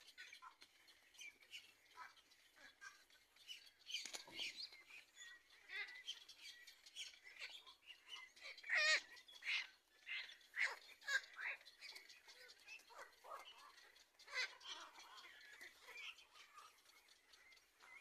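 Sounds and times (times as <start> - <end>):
heron chick squeaky calls: 0.0 - 18.0
rapid chattering call: 3.7 - 18.0.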